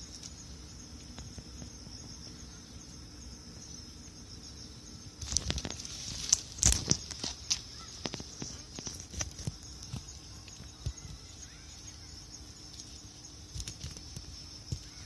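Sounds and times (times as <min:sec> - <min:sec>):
insects chirring: 0:00.0 - 0:15.0
close rustles: 0:05.2 - 0:11.2.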